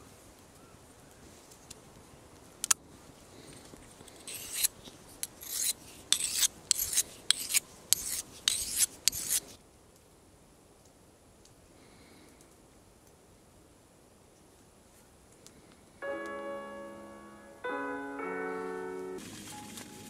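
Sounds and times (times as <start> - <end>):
knife scraping on sharpening stone: 4.2 - 4.7, 5.4 - 9.5.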